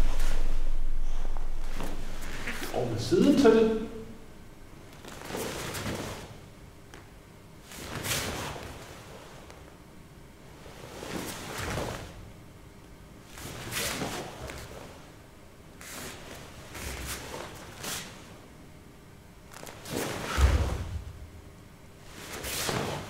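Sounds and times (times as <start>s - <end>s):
cloth swishing: 0.0s - 2.7s, 19.5s - 21.2s, 22.0s - 23.0s
bare feet shifting on foam mat: 0.0s - 2.8s, 19.5s - 21.3s
thud on mat: 20.3s - 21.2s.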